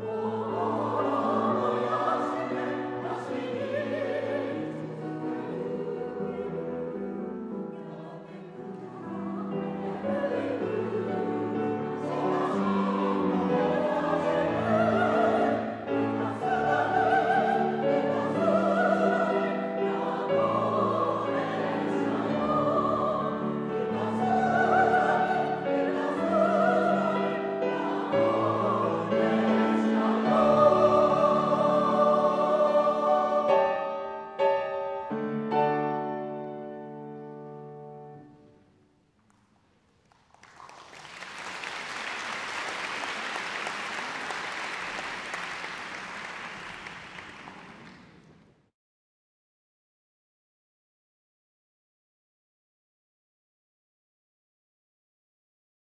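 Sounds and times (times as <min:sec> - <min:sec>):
mixed choir singing: 0:00.0 - 0:35.1
grand piano accompaniment: 0:00.0 - 0:48.6.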